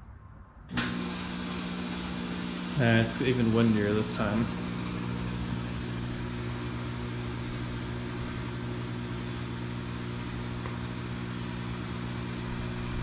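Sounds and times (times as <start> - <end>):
fog machine humming: 0.7 - 13.0.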